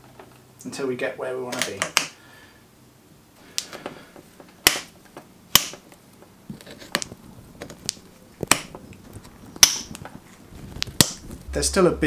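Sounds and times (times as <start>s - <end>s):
cutters snapping wood: 5.5s - 5.8s, 7.7s - 8.8s, 9.6s - 10.1s.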